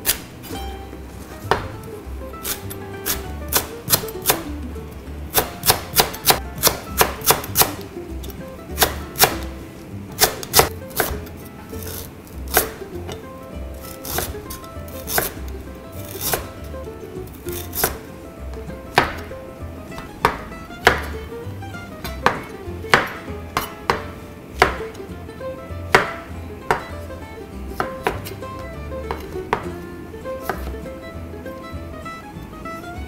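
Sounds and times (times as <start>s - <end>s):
knife knocking on cutting board: 1.5s - 1.8s, 22.0s - 24.9s, 25.9s - 26.9s.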